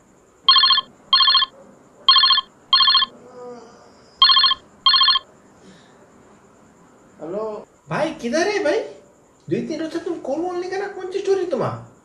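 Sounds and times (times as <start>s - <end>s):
phone ringing in double rings: 0.5s - 1.5s, 2.1s - 3.1s, 4.2s - 5.2s.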